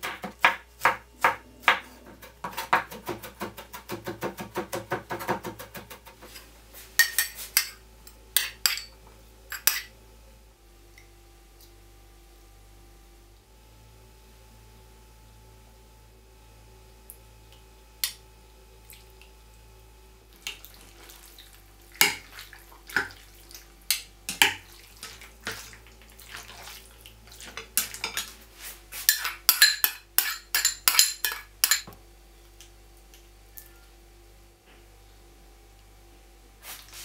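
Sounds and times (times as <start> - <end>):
utensils clinking against glass bowl: 7.0 - 9.9, 29.1 - 32.0.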